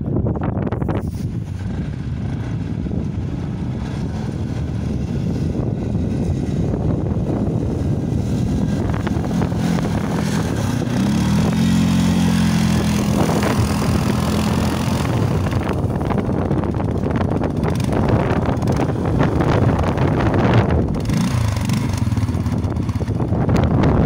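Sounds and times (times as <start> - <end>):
quad engine running: 0.0 - 24.0
steady noisy rush: 0.0 - 24.0.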